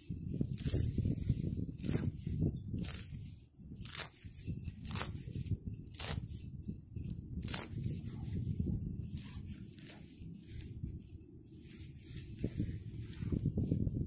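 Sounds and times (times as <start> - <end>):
blade tearing into turf: 0.4 - 8.1.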